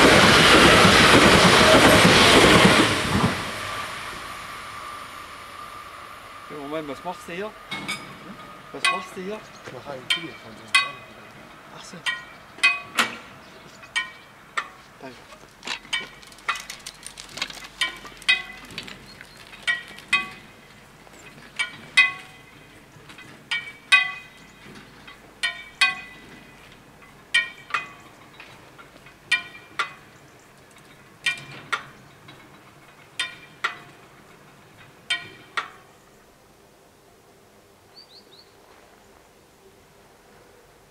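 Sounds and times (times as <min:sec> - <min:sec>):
level crossing warning bells: 0:04.4 - 0:15.2, 0:17.8 - 0:36.6.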